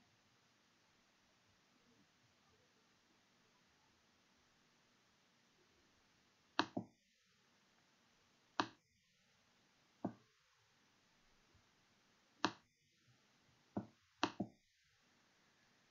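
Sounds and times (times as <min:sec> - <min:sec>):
faint steady hiss: 0:00.0 - 0:15.9
computer mouse clicking: 0:06.6 - 0:06.9, 0:08.6 - 0:08.8, 0:12.4 - 0:12.6, 0:13.8 - 0:14.6.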